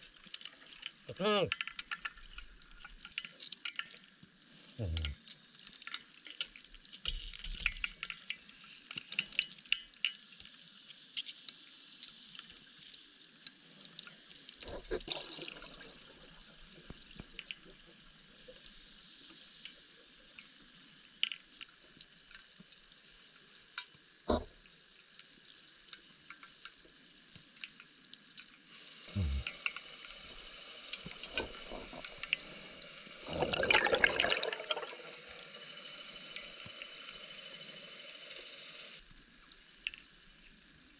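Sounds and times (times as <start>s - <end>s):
crackling clicks: 0.0s - 10.5s, 16.0s - 28.6s, 29.4s - 32.6s, 39.4s - 40.6s
steady high hiss: 10.0s - 14.6s, 28.6s - 39.3s.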